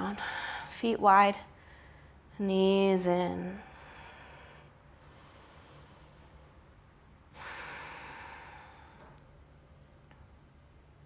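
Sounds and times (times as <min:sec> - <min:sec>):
woman breathing out: 0:07.3 - 0:09.2.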